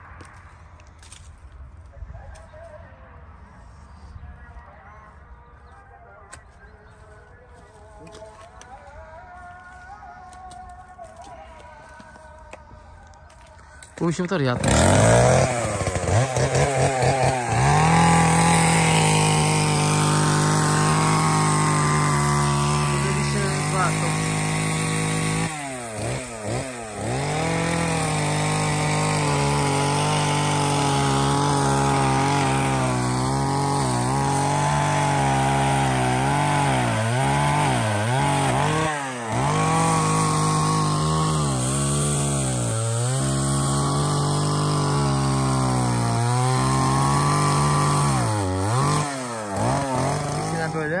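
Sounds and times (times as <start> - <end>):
chainsaw cutting at high revs: 13.3 - 51.0.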